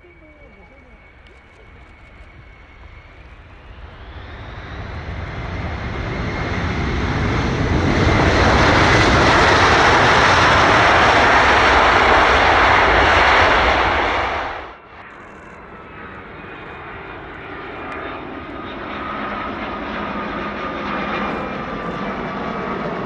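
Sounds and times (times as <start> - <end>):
jet engines of passing aircraft: 0.0 - 23.0
rising jet engine whine: 0.0 - 23.0.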